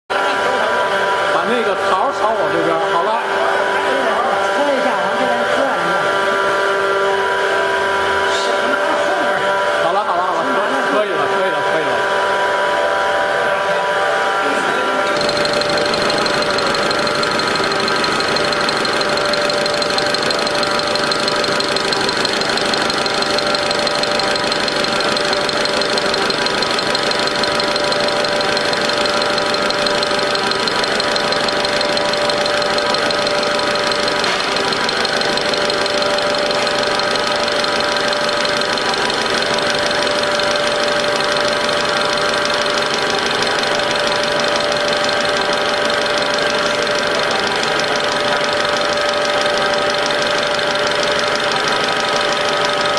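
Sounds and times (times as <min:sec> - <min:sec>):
lathe cutting with rapid knocking: 0:00.1 - 0:52.9
held ringing tones: 0:14.6 - 0:52.9.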